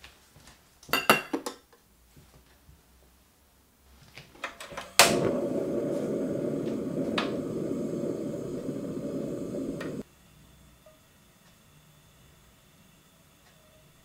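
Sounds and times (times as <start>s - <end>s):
gas stove igniter clicks: 4.6s - 10.0s
gas burner whoosh and rushing: 4.8s - 10.1s.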